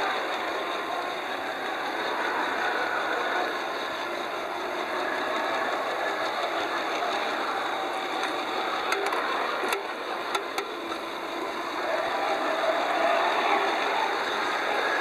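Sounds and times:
model tram motors whirring: 0.0 - 15.0
wheels rolling on rails: 0.0 - 15.0.

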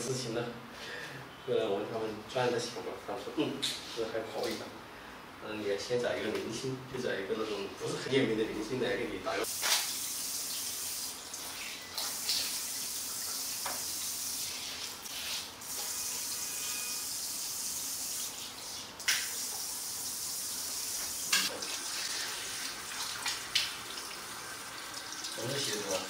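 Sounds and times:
shower sprayer hissing: 9.4 - 26.0.

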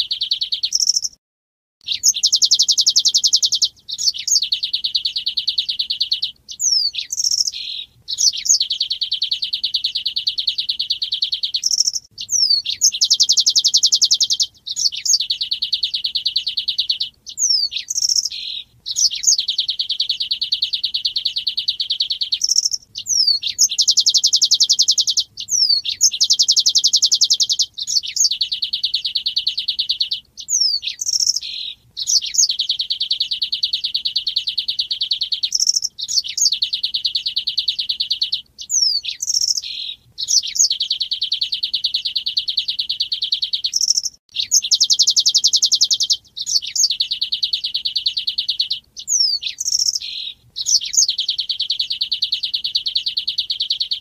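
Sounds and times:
bird chips: 0.0 - 1.2, 1.8 - 54.0.

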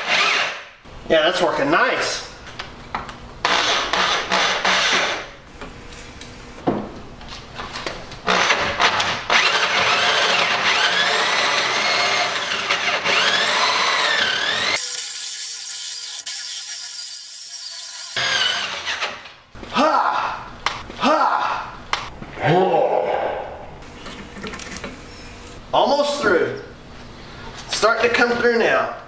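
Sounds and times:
electric drill cutting steel: 9.3 - 19.2.

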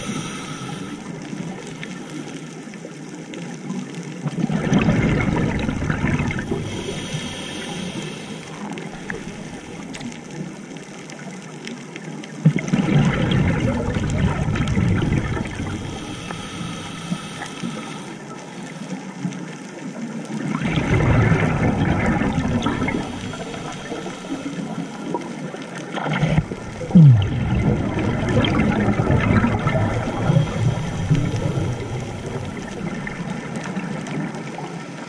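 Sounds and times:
faint regulator hiss: 0.0 - 3.4, 6.3 - 11.4, 15.3 - 19.9, 22.6 - 27.0, 28.4 - 35.0
exhaled bubbles gurgling: 0.0 - 35.0.

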